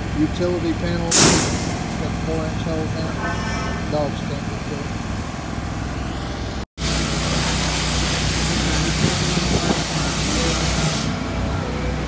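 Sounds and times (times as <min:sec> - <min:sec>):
welding arc hissing: 0:06.8 - 0:11.1.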